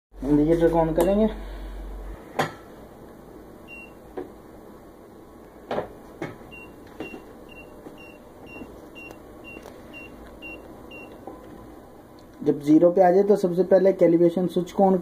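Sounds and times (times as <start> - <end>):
high-pitched beeps: 6.5 - 11.2.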